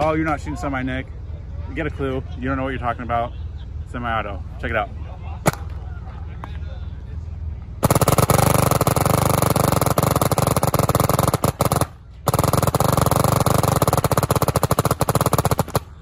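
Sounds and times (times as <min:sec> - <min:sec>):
rapid paintball marker shots: 0:05.5 - 0:05.8, 0:07.8 - 0:16.0.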